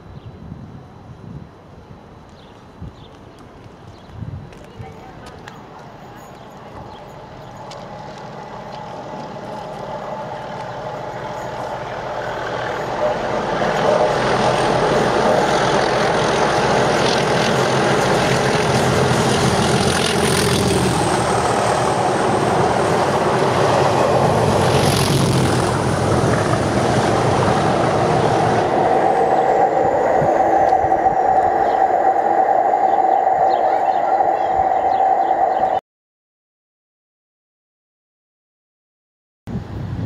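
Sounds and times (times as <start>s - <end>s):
diesel locomotive engines droning: 0.0s - 35.8s.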